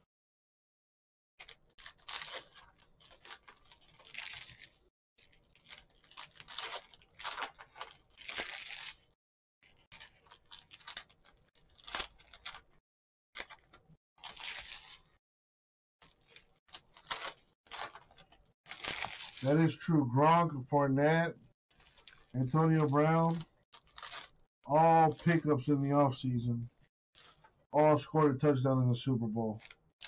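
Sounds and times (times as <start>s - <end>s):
foil card pack crinkling: 1.4s - 12.8s, 13.4s - 15.2s, 16.0s - 19.6s, 21.7s - 25.5s, 27.2s - 27.6s.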